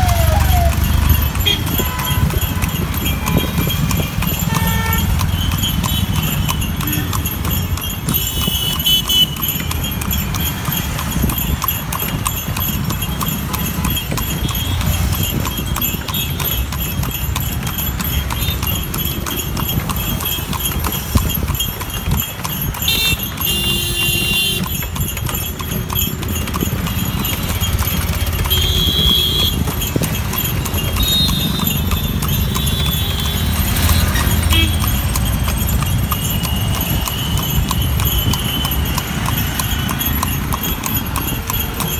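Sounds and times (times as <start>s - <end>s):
hooves clip-clopping on asphalt: 0.0s - 41.9s
low rumble of traffic: 0.0s - 41.9s
vehicle horn: 1.4s - 2.4s, 4.5s - 5.1s, 22.9s - 24.6s, 28.6s - 29.6s, 34.5s - 34.8s.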